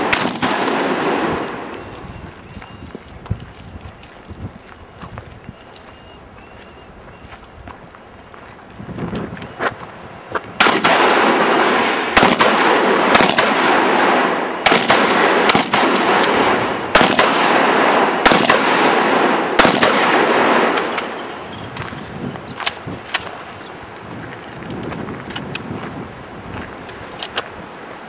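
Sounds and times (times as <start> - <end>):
shotgun blasts with echo: 0.0 - 1.8, 10.6 - 21.4.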